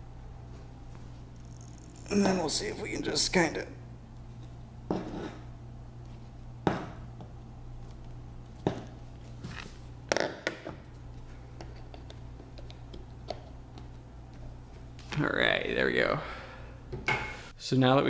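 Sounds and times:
steady low hum: 0.0 - 18.0
handling knocks and taps: 11.6 - 14.5.

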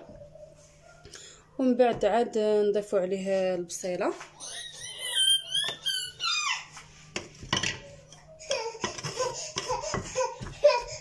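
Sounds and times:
child giggling: 4.4 - 6.6
wooden spoon scraping clay pot: 8.8 - 10.9.

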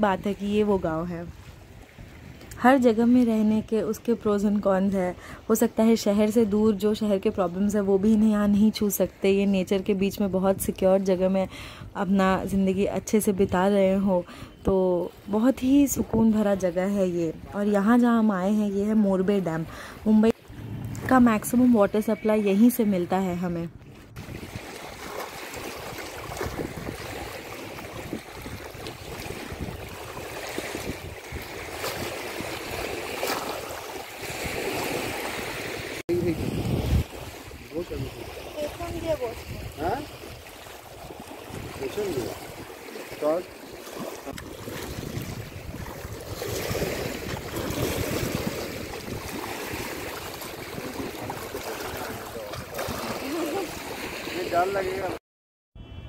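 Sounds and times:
water lapping and splashing: 0.0 - 55.2
wind rumble on microphone: 20.4 - 21.5, 23.5 - 25.0, 25.6 - 42.8, 44.3 - 52.8.

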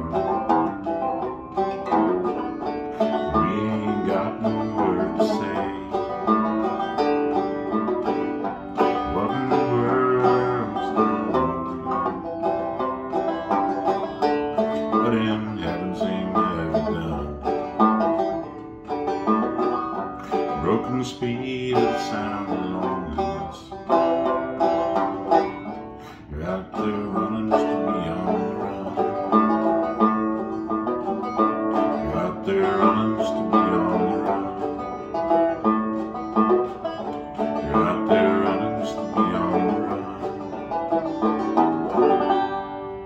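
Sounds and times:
solo banjo playing: 0.0 - 43.0.

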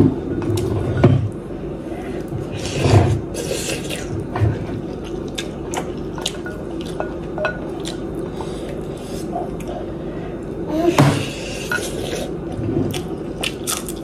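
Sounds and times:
chewing and mouth sounds: 3.4 - 10.0, 11.7 - 14.0.

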